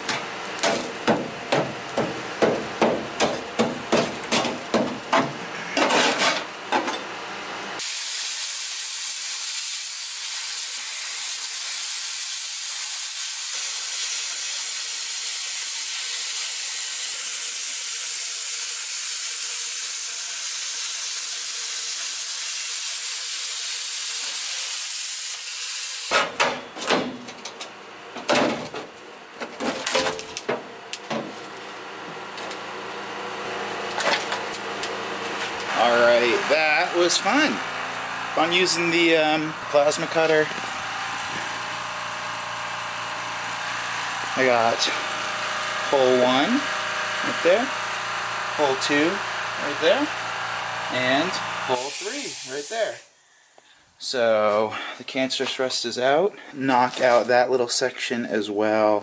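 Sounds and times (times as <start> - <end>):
metal clanks and knocks: 0.0 - 7.1, 28.2 - 31.4
knocks on sheet steel: 0.6 - 5.4
plasma cutter hissing: 7.8 - 26.1, 51.0 - 53.1.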